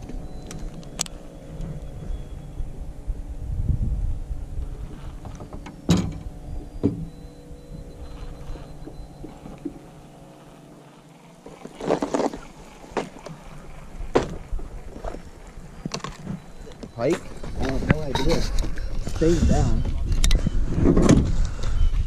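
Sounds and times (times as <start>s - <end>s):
fishing reel whirring: 0.0s - 20.7s.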